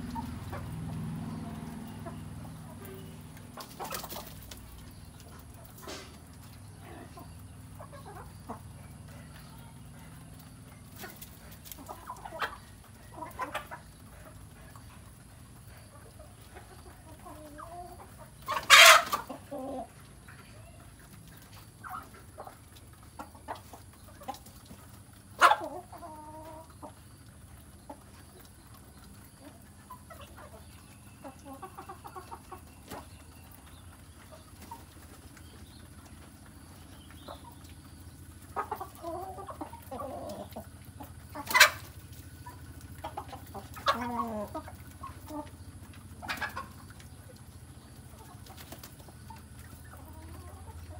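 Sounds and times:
chickens clucking: 0.0 - 50.9
sharp loud chicken calls: 18.5 - 19.3.

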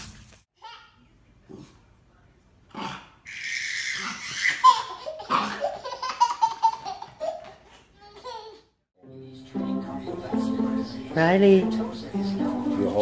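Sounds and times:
baby laughing: 3.3 - 8.7.

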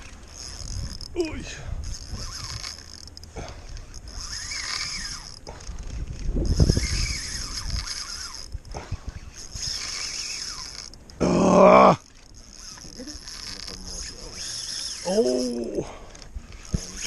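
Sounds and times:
wind rumbling on microphone: 0.0 - 2.8, 3.4 - 9.8
fishing reel whirring: 0.0 - 17.0.

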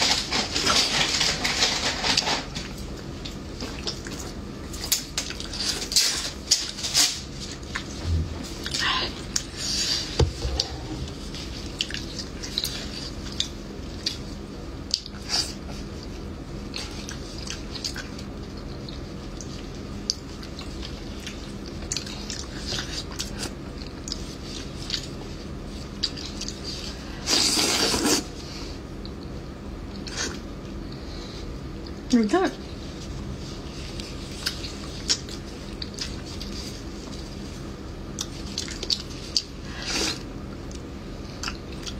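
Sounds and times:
lip smacking and chewing: 16.9 - 25.2, 38.1 - 41.9.

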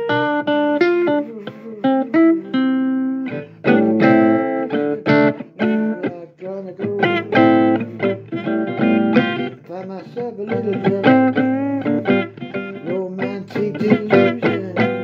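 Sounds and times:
person singing: 0.0 - 15.0
plucked guitar notes: 0.0 - 15.0.

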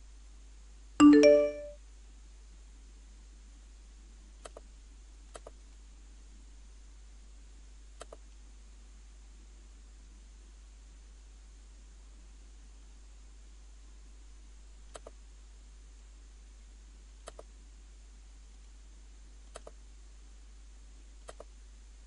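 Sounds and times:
two-note bell-like chime: 1.0 - 1.8
faint computer mouse clicks: 4.4 - 4.7, 5.3 - 5.6, 8.0 - 8.4, 14.9 - 15.2, 17.2 - 17.5, 19.5 - 19.8, 21.2 - 21.5.

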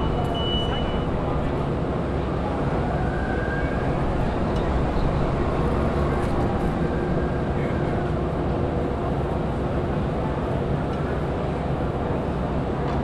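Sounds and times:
large engine humming: 0.0 - 13.0.

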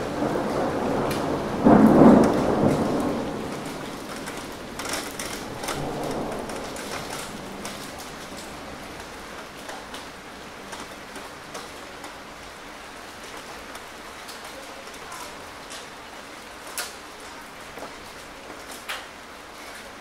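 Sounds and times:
sharp raindrop hits: 0.0 - 15.9
steady rain: 0.0 - 20.0.

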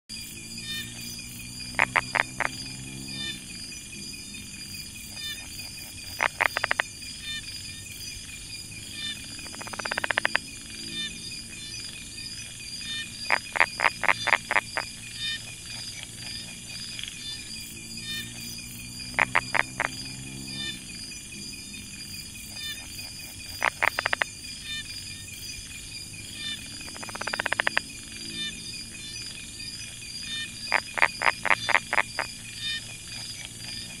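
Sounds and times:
insect chorus: 0.1 - 34.0
frog calling in sharp clicks: 1.7 - 3.4, 5.1 - 7.4, 9.0 - 11.1, 12.9 - 17.4, 19.1 - 20.8, 22.5 - 24.9, 26.4 - 28.5, 30.3 - 34.0.

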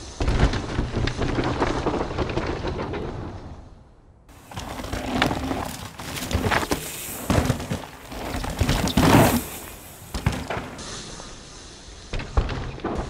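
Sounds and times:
tyre noise on dirt: 4.3 - 11.0.

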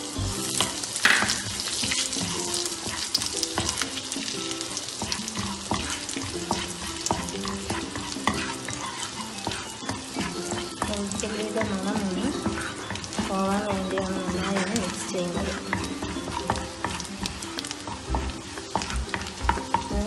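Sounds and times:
garlic sizzling in butter: 0.0 - 20.0
wooden spatula scraping pan: 0.6 - 20.0.

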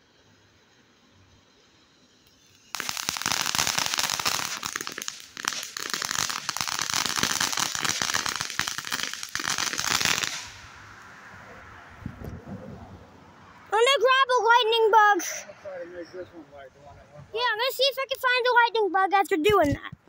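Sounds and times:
firework hiss: 0.0 - 11.5
firework crackling pops: 1.9 - 11.1.

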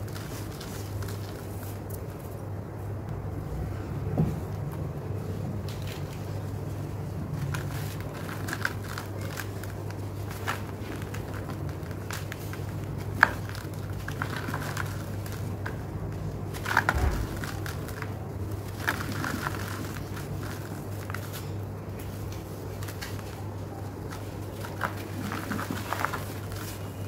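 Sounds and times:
cement clumps crunching and trickling: 5.7 - 27.0.

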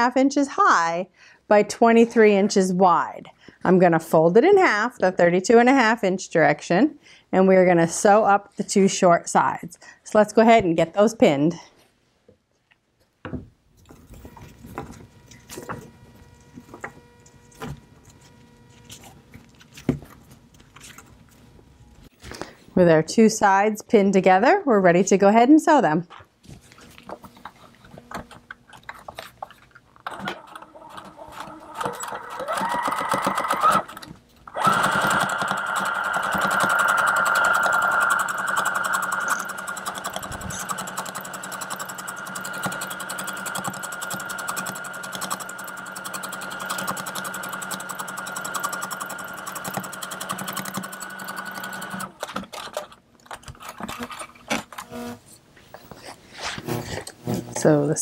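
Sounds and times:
electric sewing machine stitching: 30.1 - 52.8, 53.8 - 55.2, 56.6 - 57.7.

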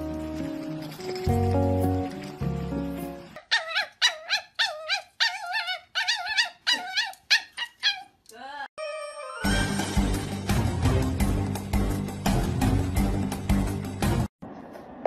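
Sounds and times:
background music: 0.0 - 3.4, 8.8 - 14.3
puppy crying and yelping: 3.4 - 8.2.

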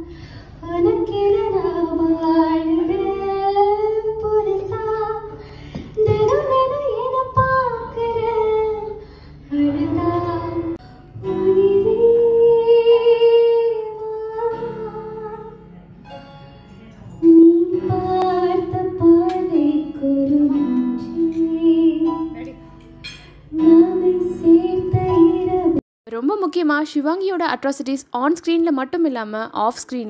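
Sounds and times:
woman singing into a microphone: 0.0 - 15.7, 17.2 - 22.6, 23.5 - 25.8.

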